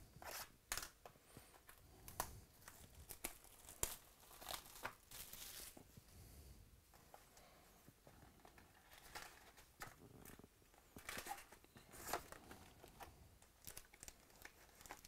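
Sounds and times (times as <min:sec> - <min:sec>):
plastic wrap crinkling: 0:02.1 - 0:05.8, 0:08.4 - 0:15.0.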